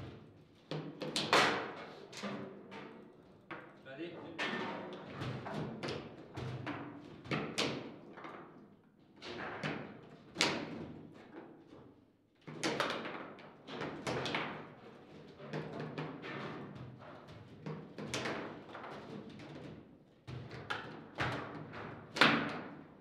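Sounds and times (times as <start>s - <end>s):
foosball ball knocks and clacks: 12.5s - 22.9s.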